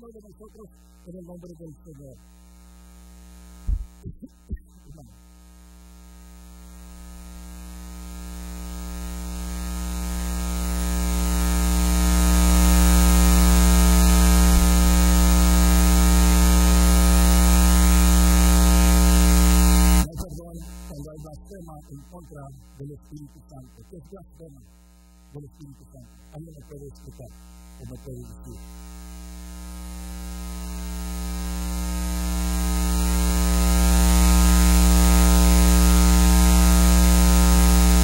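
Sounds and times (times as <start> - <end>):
electrical mains hum: 0.0 - 22.3.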